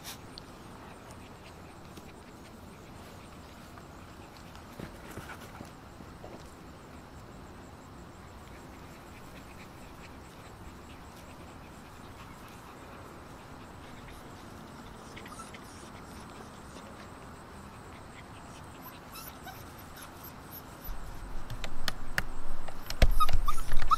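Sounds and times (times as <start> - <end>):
soft ticks and rustles: 0.0 - 7.0, 8.4 - 18.9
steady low background noise: 0.0 - 23.9
faint high squeak: 23.0 - 23.9.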